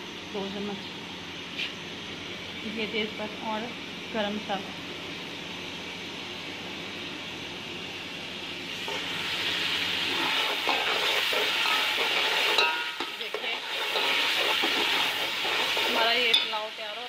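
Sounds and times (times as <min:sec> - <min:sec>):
food sizzling in oil: 0:08.6 - 0:17.0.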